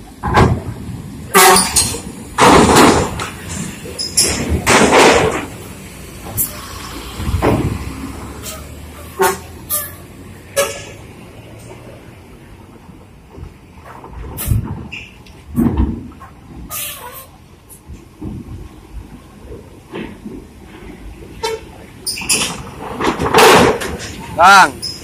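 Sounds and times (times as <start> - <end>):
bus engines rumbling: 0.0 - 25.0
bus horn blasts: 1.3 - 2.0, 8.4 - 11.0, 21.4 - 21.7.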